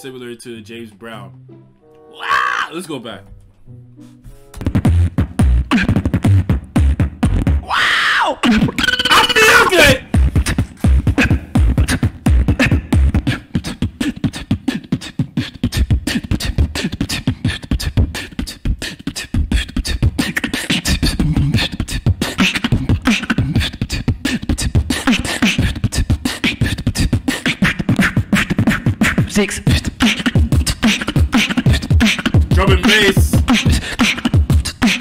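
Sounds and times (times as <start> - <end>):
person beatboxing: 4.7 - 7.6, 8.4 - 35.0.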